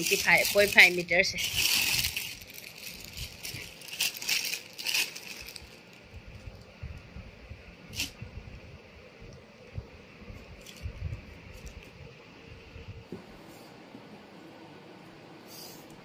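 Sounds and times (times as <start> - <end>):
plastic packaging crinkling: 0.0 - 6.7.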